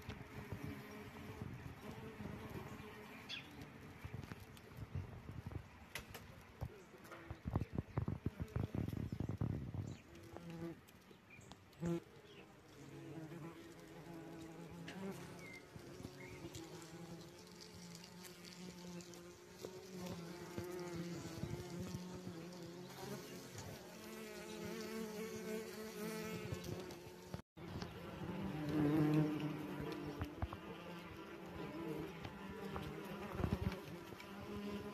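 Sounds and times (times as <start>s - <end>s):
wasps buzzing: 11.8s - 34.9s.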